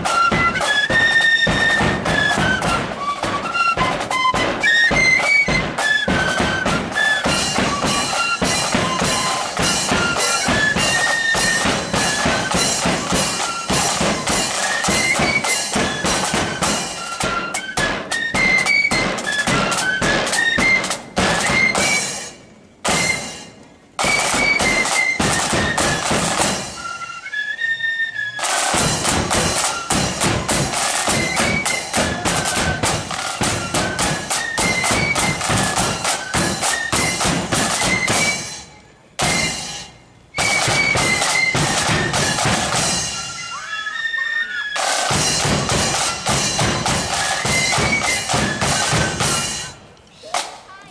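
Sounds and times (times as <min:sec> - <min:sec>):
rapid snare drumming: 0:00.0 - 0:22.2, 0:24.0 - 0:26.8, 0:28.4 - 0:38.6, 0:39.2 - 0:43.3, 0:44.8 - 0:50.8
flutes playing melody: 0:00.0 - 0:50.2.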